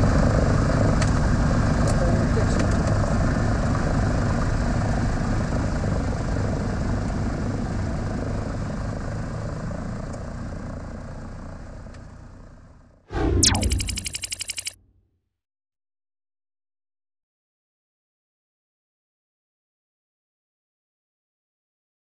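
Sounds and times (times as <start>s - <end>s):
falling tone sound effect: 13.1s - 14.8s.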